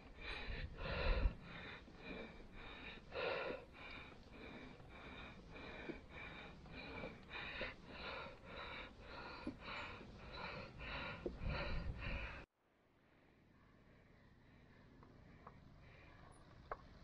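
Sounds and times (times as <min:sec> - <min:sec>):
wind rumble on microphone: 0:00.0 - 0:01.6, 0:11.2 - 0:12.4
cyclist panting: 0:00.0 - 0:12.5, 0:13.6 - 0:17.0.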